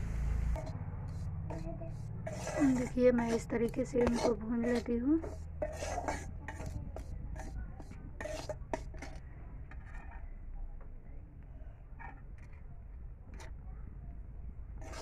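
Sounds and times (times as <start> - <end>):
metal spatula scraping a pan: 0.2 - 10.6, 11.9 - 12.7, 13.3 - 13.6, 14.7 - 15.0.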